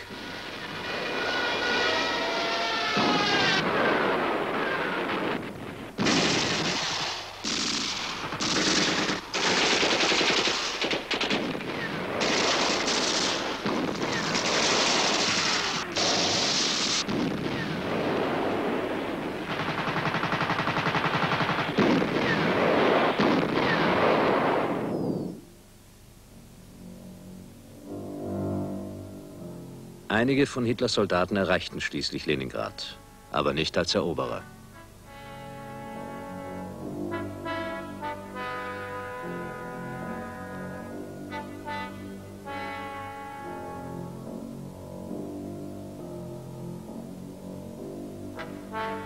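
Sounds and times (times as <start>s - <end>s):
machine-gun fire bursts: 6.0s - 24.8s.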